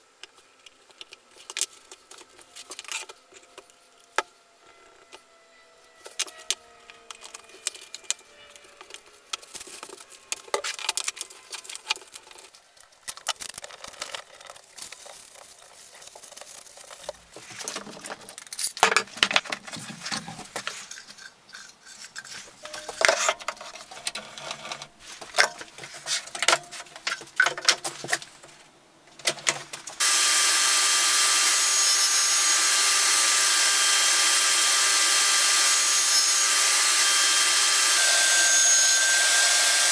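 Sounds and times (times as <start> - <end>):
wooden parts clicking and knocking: 6.0 - 30.0
table saw running: 30.0 - 39.9.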